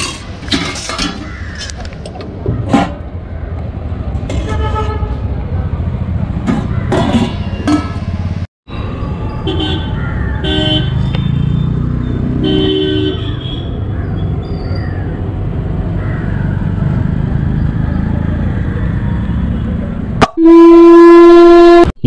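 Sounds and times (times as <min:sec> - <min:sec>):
street traffic rumbling: 0:00.0 - 0:20.8
vehicle horn toot: 0:12.4 - 0:13.7, 0:20.2 - 0:22.0
loud steady tone: 0:20.2 - 0:22.0.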